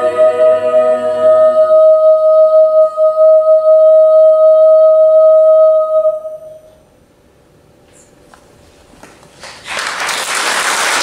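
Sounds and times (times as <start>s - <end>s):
choir singing final chord: 0.0s - 6.5s
soprano holding high note: 0.0s - 6.9s.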